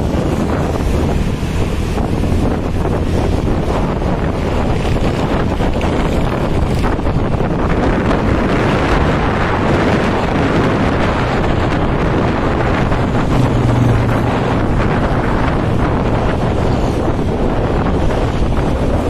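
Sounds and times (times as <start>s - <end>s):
vehicle road and engine noise: 0.0s - 19.0s
wind buffeting microphone: 0.0s - 19.0s.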